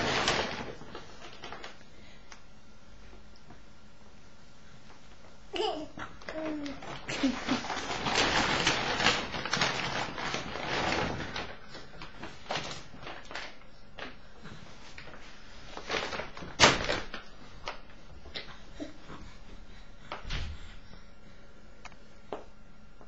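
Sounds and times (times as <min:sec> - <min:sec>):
fabric bag rustling: 0:06.8 - 0:13.5, 0:14.9 - 0:17.8.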